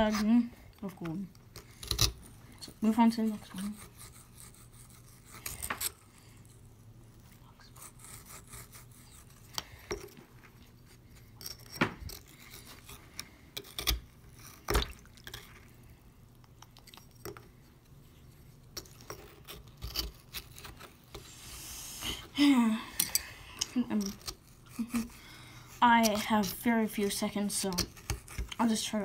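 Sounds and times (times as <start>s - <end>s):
plastic tools scraping wet clay: 23.0s - 29.0s.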